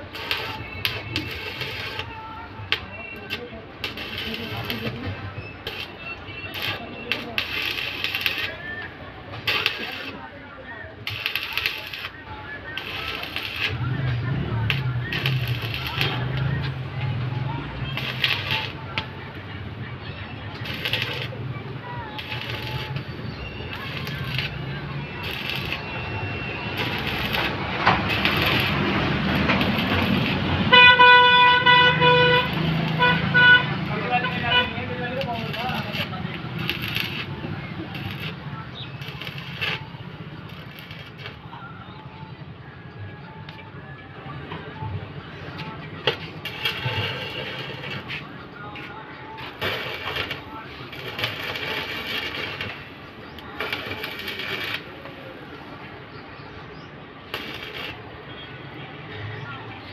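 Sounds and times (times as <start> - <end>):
welding arc crackling and hissing: 0.0 - 10.3, 11.0 - 41.4, 46.1 - 48.2, 48.8 - 55.2, 57.3 - 58.1
vehicle horn: 30.6 - 34.9.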